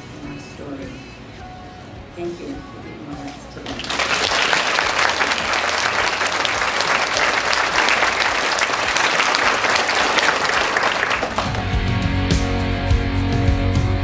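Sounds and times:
audience applauding: 3.7s - 11.9s.

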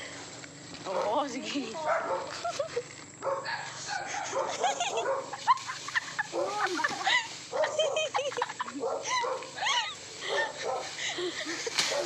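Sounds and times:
dog barking: 1.8s - 2.4s, 3.2s - 5.4s, 6.3s - 6.7s, 7.5s - 8.2s, 8.8s - 9.5s, 10.3s - 10.9s.

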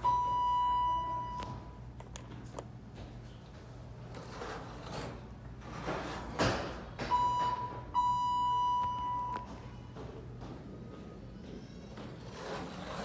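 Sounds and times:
elevator electronic beep: 0.0s - 1.9s, 7.0s - 10.0s.

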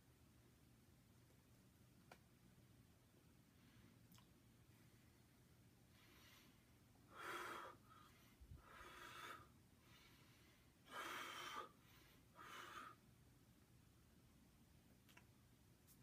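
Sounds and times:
person breathing deeply: 5.9s - 13.0s.

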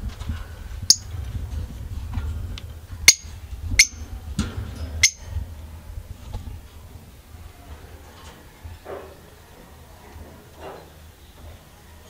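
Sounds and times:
steady low rumble: 0.0s - 8.8s
budgerigars chirping: 3.1s - 4.0s, 5.0s - 5.2s.

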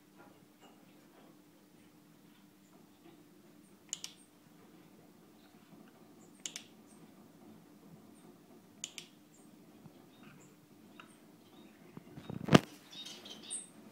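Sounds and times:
faint sharp double clicks: 3.9s - 4.2s, 8.8s - 9.2s.

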